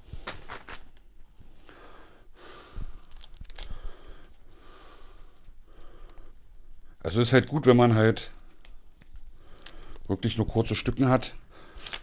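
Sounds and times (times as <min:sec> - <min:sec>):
cable handling noise: 0:00.1 - 0:01.7, 0:03.0 - 0:04.4, 0:08.3 - 0:11.1
breathing close to microphone: 0:01.4 - 0:07.0, 0:09.3 - 0:10.1, 0:11.4 - 0:12.0.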